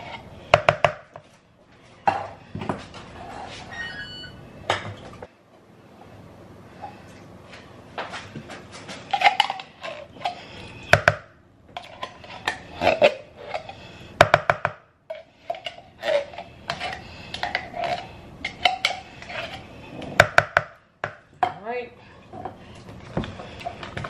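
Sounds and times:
utensil scraping and knocking cookware: 15.1s - 20.7s.

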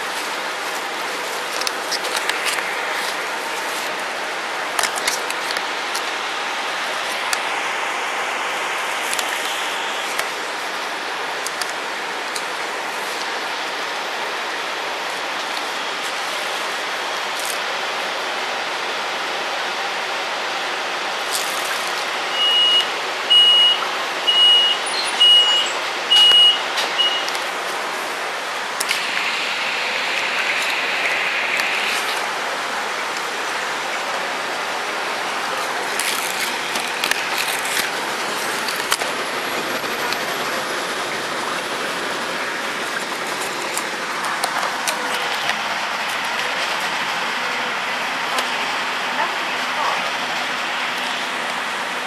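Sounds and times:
bus engine and road noise: 0.0s - 52.0s
short high electronic beeps: 22.4s - 27.3s.

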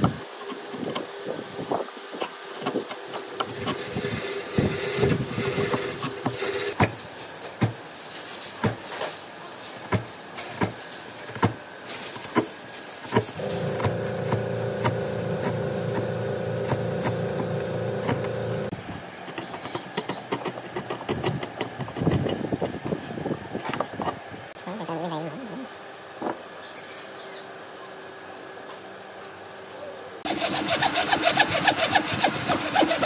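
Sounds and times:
small electric tool motor: 3.4s - 6.8s, 13.3s - 18.7s, 30.2s - 33.0s.

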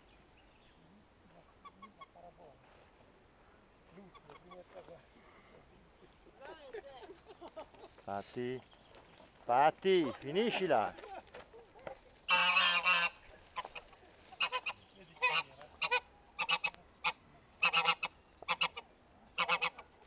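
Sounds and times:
goose honking: 12.3s - 18.8s, 19.4s - 19.9s.

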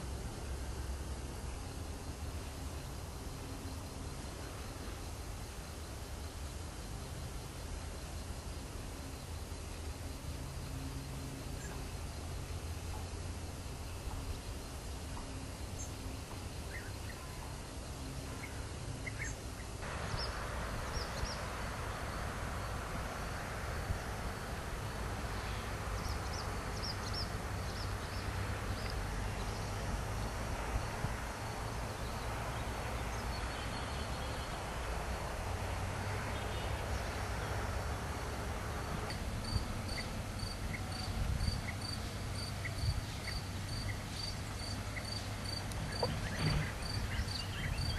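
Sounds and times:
cricket chirping: 0.0s - 47.9s
steady hiss and low hum: 0.0s - 47.9s.

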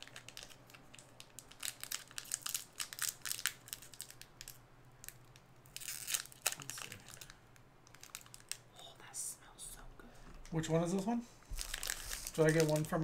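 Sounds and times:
wrapper snapping: 0.0s - 8.7s, 11.6s - 13.0s
snack wrapper crinkling and tearing: 0.0s - 8.8s, 11.5s - 13.0s.

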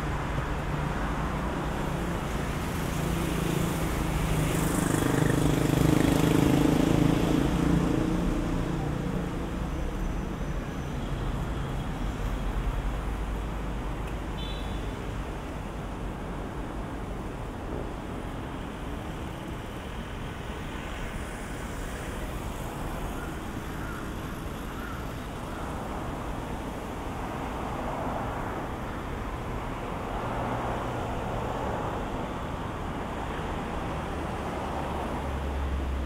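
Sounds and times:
road traffic: 0.0s - 36.0s.

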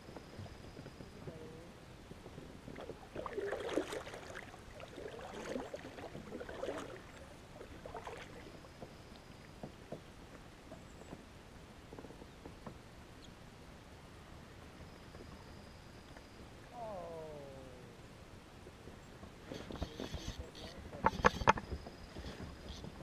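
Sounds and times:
kayak paddle splashing: 2.6s - 10.1s.

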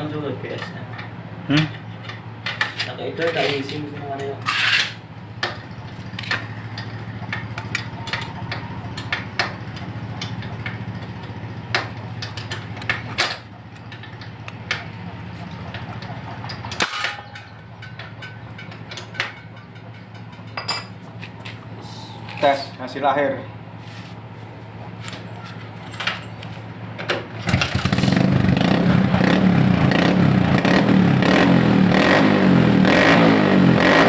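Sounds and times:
steady low hum: 0.0s - 32.0s
metallic clicks and clanks of tools: 0.5s - 14.9s, 15.6s - 21.4s.

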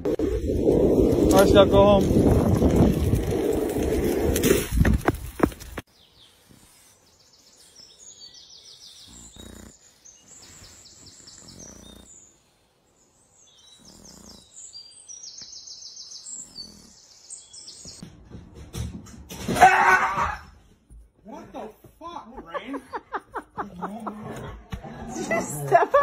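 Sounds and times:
small birds chirping: 5.3s - 18.2s.

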